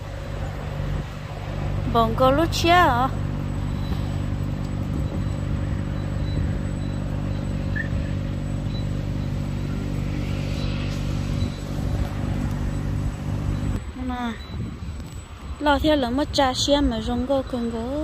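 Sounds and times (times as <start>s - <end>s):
vehicle engine running: 0.0s - 13.9s.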